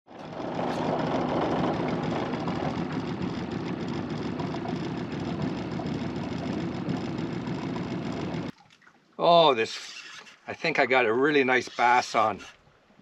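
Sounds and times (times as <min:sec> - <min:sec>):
outboard motor running: 0:00.1 - 0:08.6.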